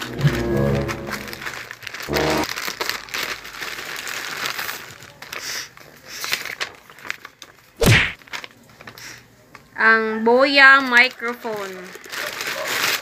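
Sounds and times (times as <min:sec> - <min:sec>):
plastic and paper crinkling: 0:00.0 - 0:09.8, 0:10.6 - 0:13.0
loud sharp crackle: 0:11.9 - 0:13.0.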